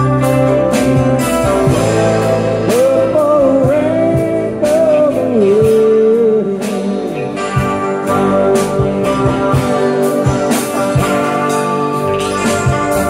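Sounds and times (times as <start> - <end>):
live band playing rock ballad: 0.0 - 13.0
man singing: 2.6 - 7.7.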